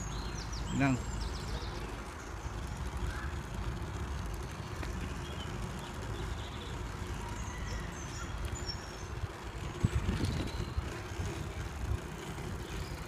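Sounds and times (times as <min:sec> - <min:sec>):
bicycle tyres rumbling on pavement: 0:00.0 - 0:13.0
wind buffeting microphone: 0:08.7 - 0:13.0.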